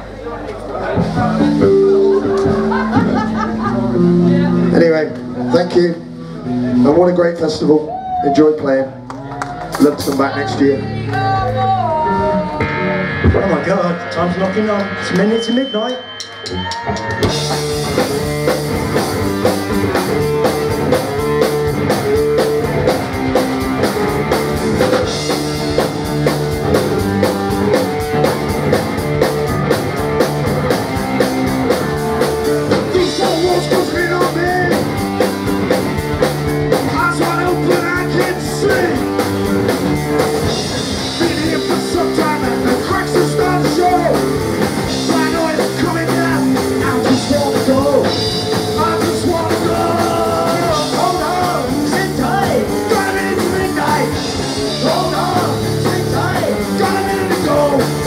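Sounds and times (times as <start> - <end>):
live rock band: 0.0 - 58.0
man singing: 32.7 - 34.9, 36.7 - 39.2, 40.5 - 58.0.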